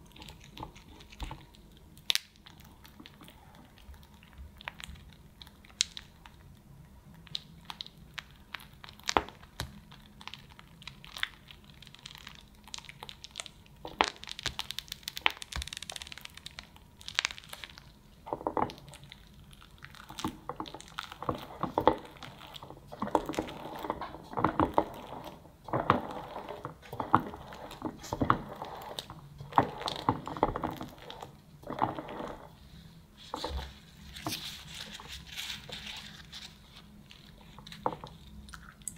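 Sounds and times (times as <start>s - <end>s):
piping bag squishing and crinkling: 0.0s - 38.9s
spatula scraping cream: 20.0s - 38.1s.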